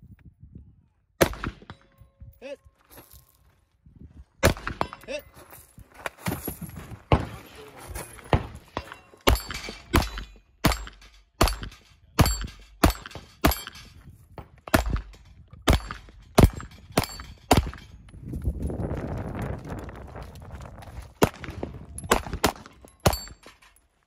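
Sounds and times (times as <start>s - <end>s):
pistol shots: 1.2s - 1.8s, 4.4s - 5.1s, 8.3s - 13.7s, 14.7s - 15.1s, 21.2s - 23.4s
steel plates clanging: 8.7s - 14.0s.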